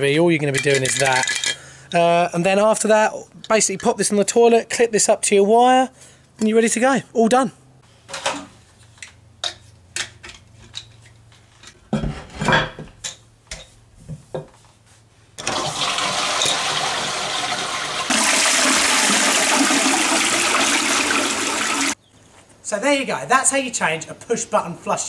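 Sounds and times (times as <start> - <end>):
toilet flushing: 15.4 - 22.0.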